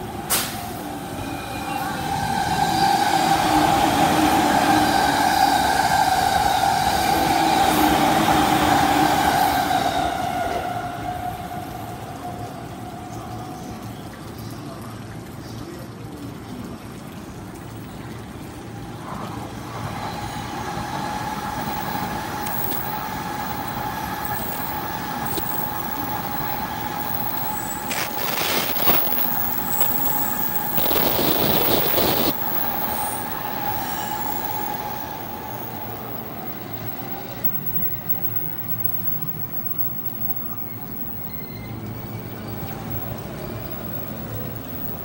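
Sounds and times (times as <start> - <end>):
high-speed train whine: 0.0 - 14.8, 18.4 - 45.0
commuter train running past: 0.0 - 15.4, 16.0 - 45.0.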